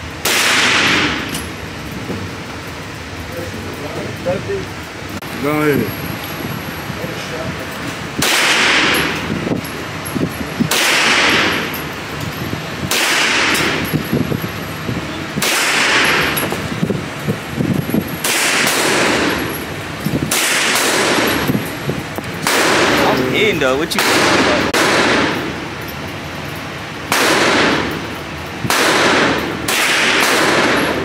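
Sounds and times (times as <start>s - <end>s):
handgun gunshots: 0.2s - 1.4s, 8.2s - 9.2s, 10.7s - 11.7s, 12.9s - 13.8s, 15.4s - 16.4s, 18.2s - 19.4s, 20.3s - 21.4s, 22.4s - 23.0s, 24.0s - 25.5s, 27.1s - 28.0s, 28.7s - 31.0s.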